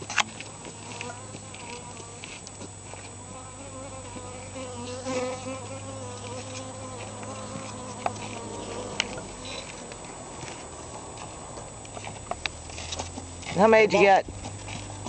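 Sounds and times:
flying insect buzzing: 0:00.0 - 0:12.0
steady low hum: 0:00.0 - 0:15.0.

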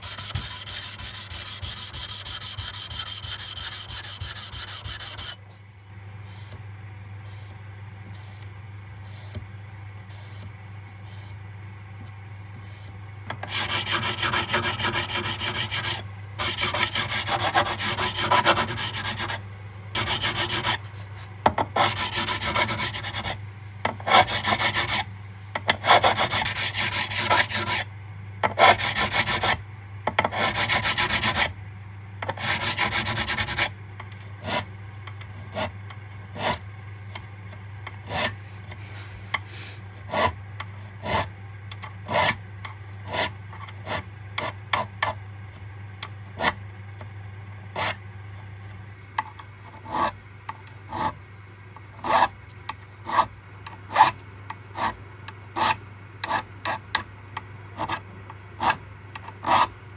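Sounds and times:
metal file rasping on frets: 0:00.0 - 0:05.4, 0:13.4 - 0:19.4, 0:20.0 - 0:20.9, 0:21.8 - 0:23.4, 0:25.8 - 0:27.9, 0:30.3 - 0:31.5, 0:32.4 - 0:33.7, 0:42.0 - 0:42.4.

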